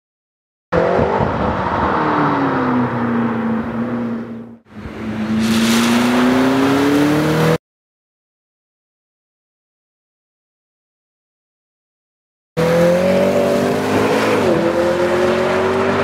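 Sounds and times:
sports car engine passing: 0.8s - 7.6s, 12.6s - 16.0s
tyres hissing on wet track: 5.2s - 6.7s.

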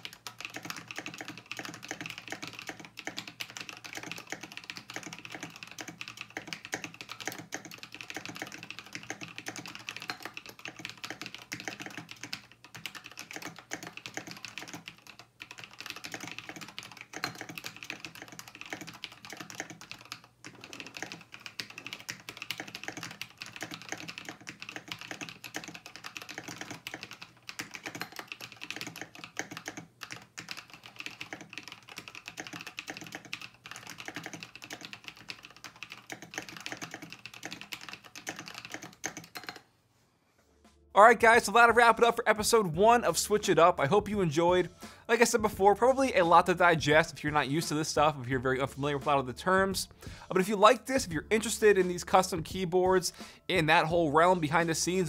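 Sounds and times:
mechanical keyboard typing: 0.0s - 39.7s.

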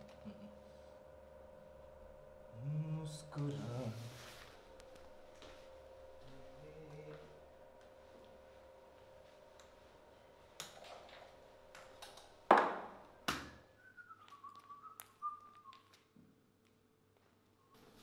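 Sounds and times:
low background hum: 0.0s - 18.0s
faint whistle-like tone: 13.6s - 15.9s.

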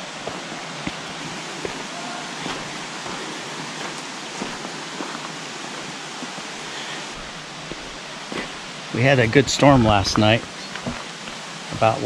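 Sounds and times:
creek water flowing: 0.0s - 12.0s
footsteps on loose stones: 0.2s - 6.4s, 7.2s - 8.7s, 9.6s - 11.4s.

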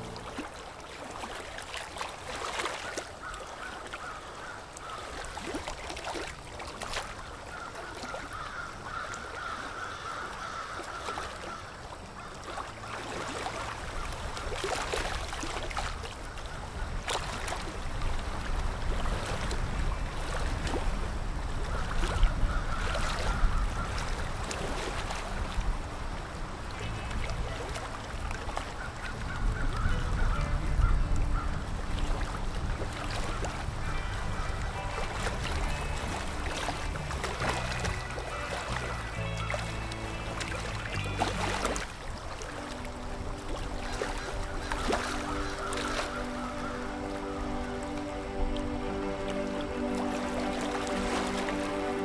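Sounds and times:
waterfowl honking: 7.0s - 15.2s, 21.6s - 24.3s, 28.6s - 52.0s.

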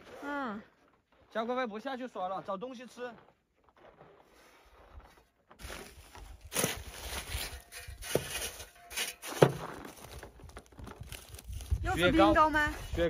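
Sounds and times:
footsteps in snow: 2.8s - 8.7s
rummaging and shifting things: 4.9s - 11.8s.

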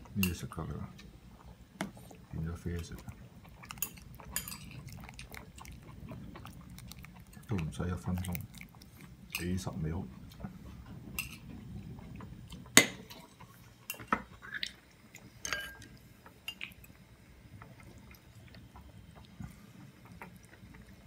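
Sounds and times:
utensils clinking against bowl: 3.7s - 5.0s, 15.4s - 15.9s.

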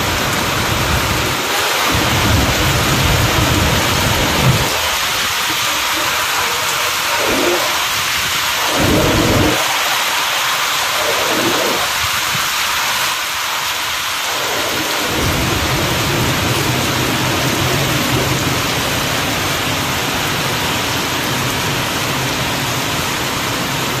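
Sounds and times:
heavy rain hiss: 0.0s - 24.0s
low rumble: 0.7s - 9.9s.

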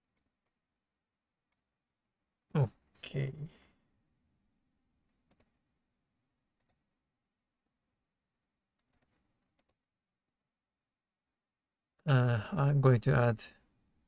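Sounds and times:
computer mouse clicks: 5.1s - 5.5s, 6.6s - 6.8s, 8.8s - 9.8s.

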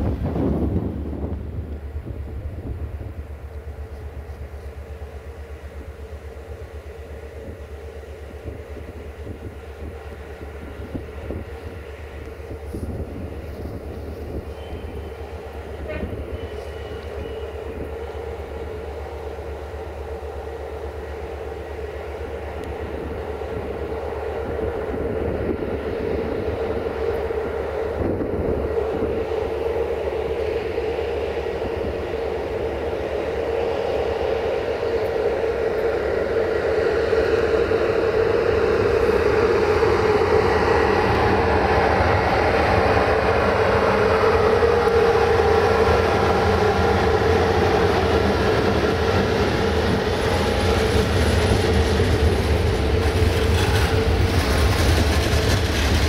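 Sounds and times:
electric locomotive humming: 0.0s - 56.0s.

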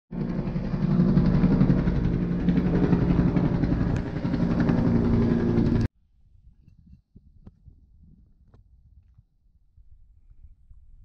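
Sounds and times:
helicopter flying overhead: 0.1s - 5.9s.

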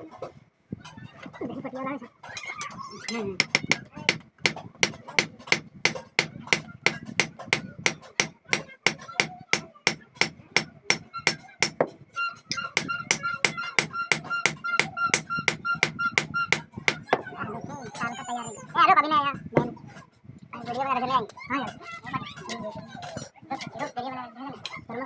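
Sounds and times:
hammer striking metal on anvil: 3.4s - 11.9s, 12.5s - 17.1s.

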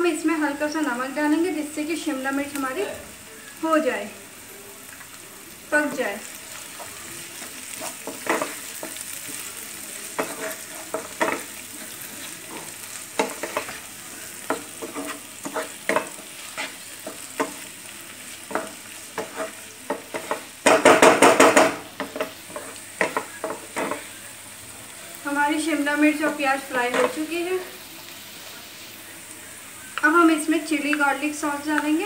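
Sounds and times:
vegetables sizzling in oil: 0.0s - 32.0s
wooden spatula scraping pan: 10.2s - 13.8s, 14.5s - 16.8s, 18.5s - 20.5s.

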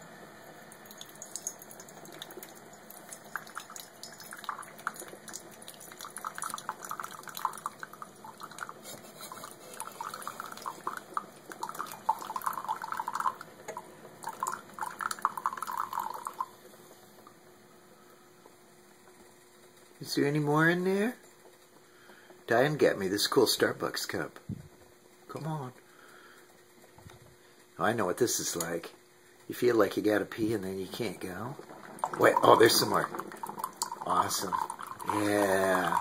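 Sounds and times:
coffee pouring into mug: 0.8s - 16.6s, 30.5s - 36.0s.

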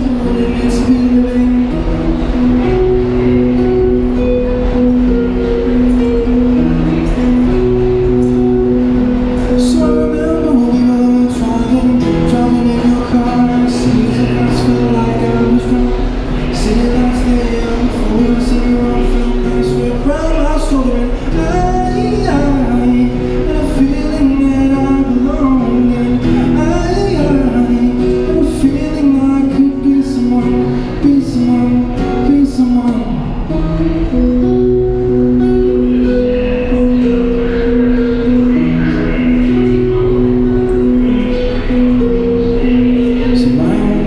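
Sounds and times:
man singing into microphone: 0.0s - 2.6s, 9.5s - 33.8s, 35.7s - 44.0s
acoustic guitar: 0.0s - 44.0s.

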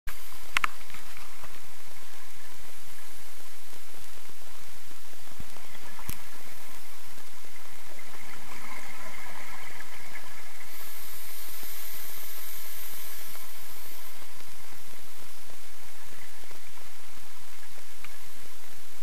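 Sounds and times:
faint high whine: 0.1s - 19.0s
underwater hiss: 0.1s - 19.0s.

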